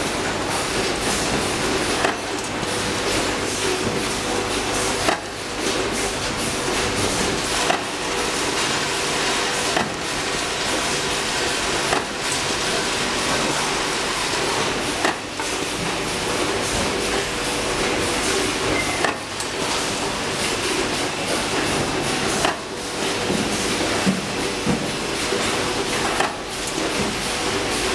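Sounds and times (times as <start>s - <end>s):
steady machine noise: 0.0s - 27.9s.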